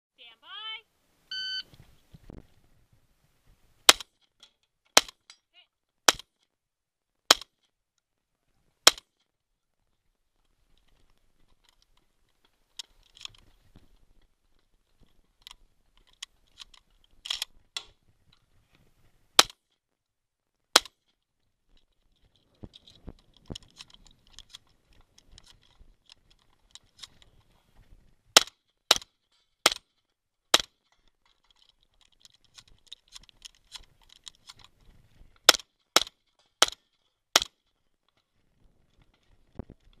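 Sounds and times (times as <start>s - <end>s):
gun handling clicking and rattling: 3.9s - 6.6s, 8.8s - 18.5s, 20.7s - 40.0s
shotgun shots: 28.4s - 29.8s.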